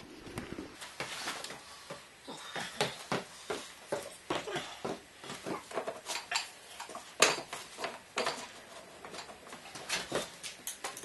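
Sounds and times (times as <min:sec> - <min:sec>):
clicks and knocks of handling things: 0:05.3 - 0:11.0.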